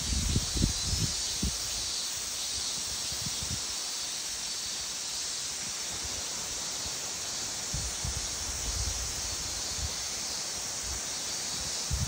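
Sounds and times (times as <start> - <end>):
wind buffeting microphone: 0.0 - 1.7
high-pitched outdoor hiss: 0.0 - 12.0.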